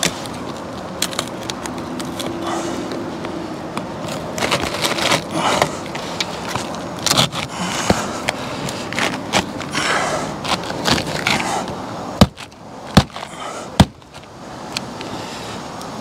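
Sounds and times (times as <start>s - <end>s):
shingles scraping and rustling: 4.0s - 14.3s.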